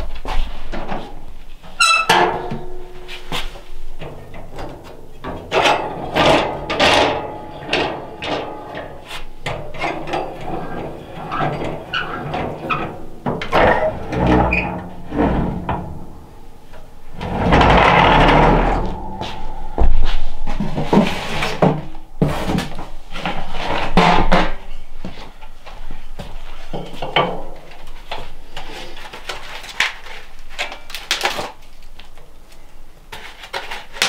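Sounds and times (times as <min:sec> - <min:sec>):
metal stove doors clanking: 0:01.8 - 0:03.2, 0:04.0 - 0:16.3
rasping scrape: 0:17.2 - 0:24.0.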